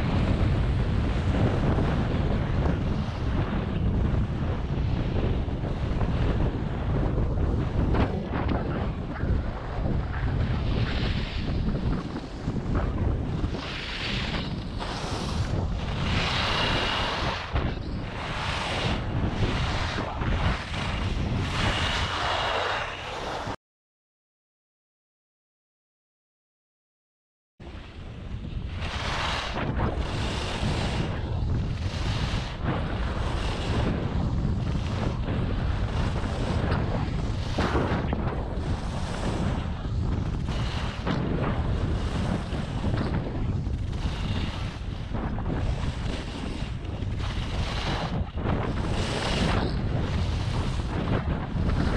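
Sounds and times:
wind rumble on microphone: 0.0s - 23.6s, 27.6s - 51.9s
skis scraping over snow: 0.1s - 23.6s, 28.6s - 51.9s.

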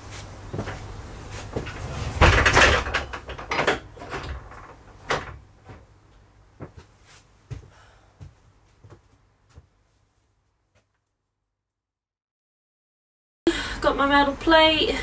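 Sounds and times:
objects rattling clatter: 1.5s - 5.8s.

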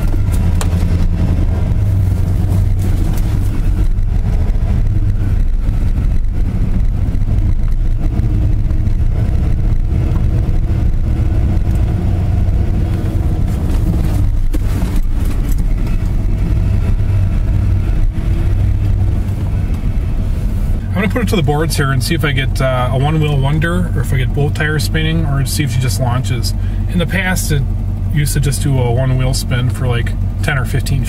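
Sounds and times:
pickup truck engine running: 0.0s - 31.0s.

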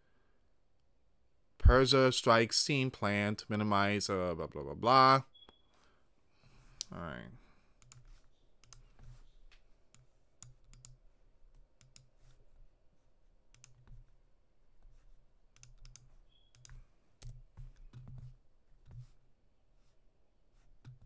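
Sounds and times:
faint mouse and keyboard clicks: 7.8s - 12.7s, 13.5s - 14.2s, 14.8s - 19.2s, 20.7s - 21.0s.

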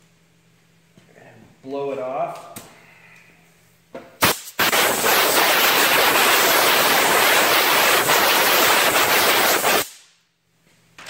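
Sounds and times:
air blow gun hissing: 4.2s - 10.1s.

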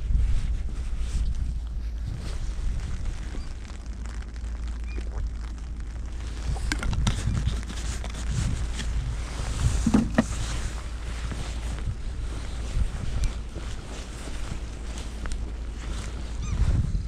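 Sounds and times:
wind buffeting microphone: 0.0s - 17.0s
handling clicks and knocks: 9.8s - 10.4s.

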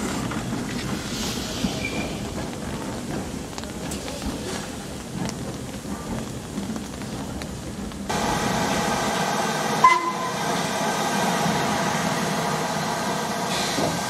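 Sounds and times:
steam hissing: 0.0s - 6.5s, 7.5s - 14.0s
high steam whistle toot: 9.8s - 10.6s.

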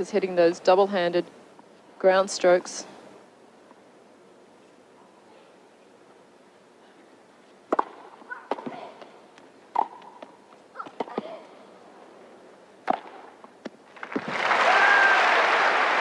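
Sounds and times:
racket striking tennis ball: 7.7s - 9.1s, 9.7s - 11.4s, 12.8s - 14.3s
tennis ball bouncing: 7.7s - 11.4s, 12.8s - 14.3s.

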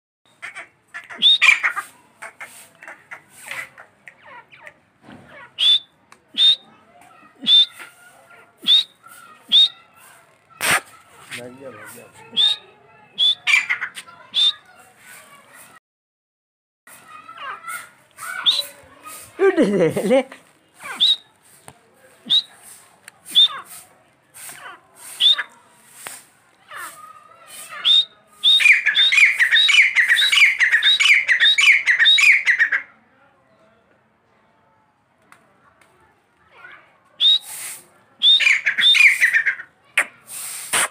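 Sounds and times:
bird whistled calls: 1.1s - 1.7s, 5.6s - 6.7s, 7.4s - 7.9s, 8.6s - 9.8s, 12.3s - 14.7s, 18.3s - 18.8s, 20.8s - 21.4s, 23.3s - 23.7s, 25.1s - 25.5s, 27.6s - 32.7s, 37.2s - 39.4s.

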